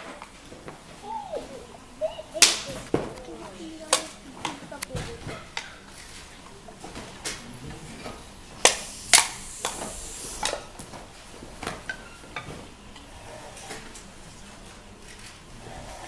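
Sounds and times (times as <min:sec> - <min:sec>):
open-hand slaps and snaps: 0:02.4 - 0:02.7, 0:08.6 - 0:09.8.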